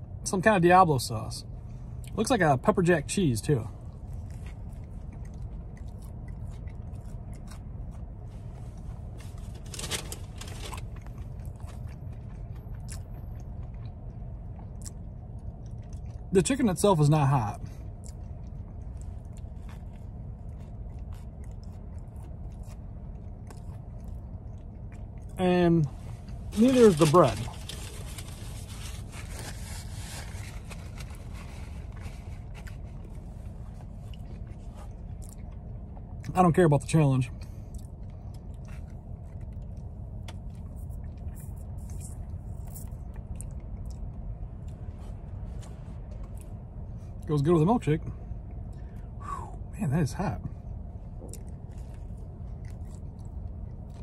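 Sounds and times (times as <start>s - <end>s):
low car cabin hum: 0.0s - 54.0s
person chewing: 3.8s - 9.2s, 10.4s - 16.3s, 17.8s - 25.4s, 26.0s - 36.2s, 51.2s - 54.0s.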